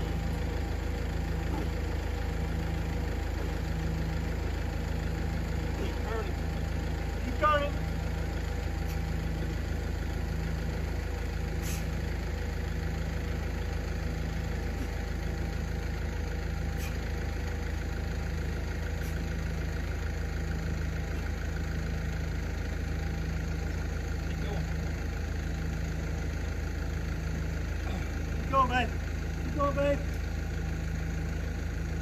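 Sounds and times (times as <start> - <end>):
low machine hum: 0.0 - 32.0.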